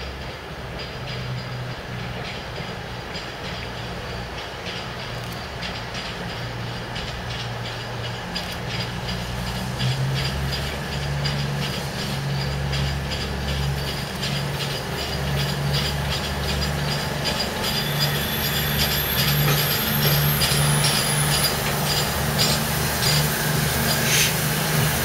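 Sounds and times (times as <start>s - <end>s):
steam train low rumble: 0.0s - 25.0s
light clicking and clanking: 0.1s - 25.0s
high squeal: 15.0s - 25.0s.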